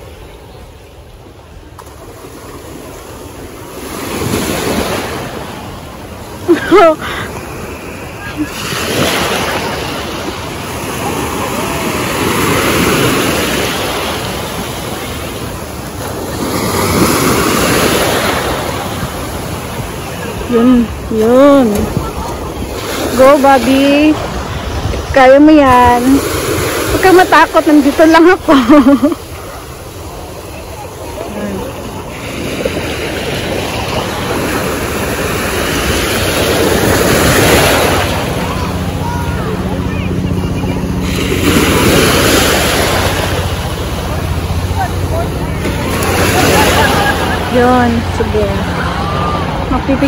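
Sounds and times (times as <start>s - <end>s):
surf waves washing in: 0.0s - 50.0s
wind buffeting microphone: 18.1s - 28.5s.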